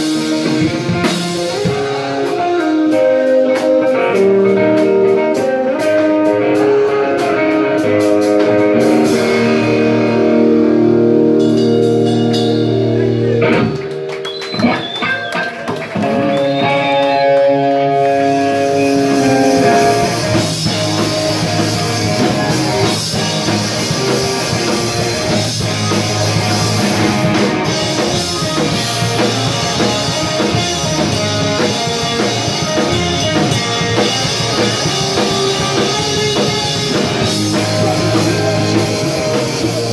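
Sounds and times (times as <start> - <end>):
punk rock band playing: 0.0 - 39.9
sliding guitar notes: 0.0 - 39.9.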